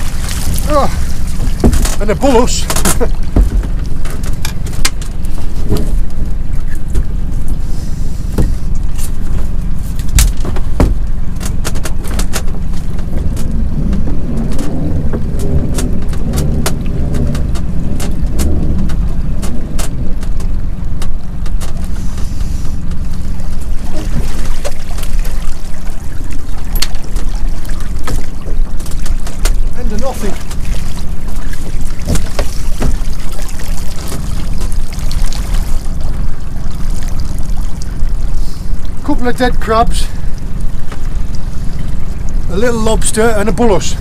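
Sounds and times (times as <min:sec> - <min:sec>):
boat engine rumbling: 0:00.0 - 0:44.0
water trickling and splashing: 0:00.0 - 0:44.0
sharp clicks and knocks: 0:01.4 - 0:07.1, 0:10.0 - 0:21.9.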